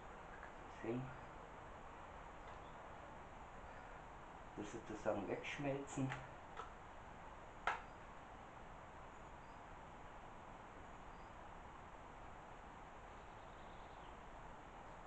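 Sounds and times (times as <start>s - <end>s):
faint hiss: 0.0s - 15.0s
sharp click: 7.6s - 7.9s.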